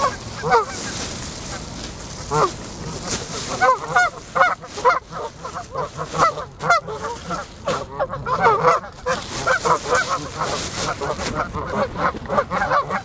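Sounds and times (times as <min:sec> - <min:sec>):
geese honking: 0:00.0 - 0:13.0.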